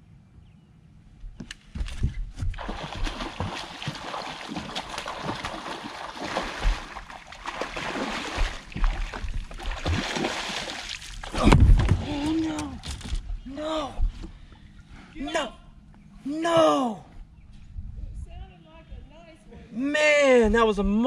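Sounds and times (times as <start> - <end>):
fish thrashing and splashing: 2.4 - 12.3.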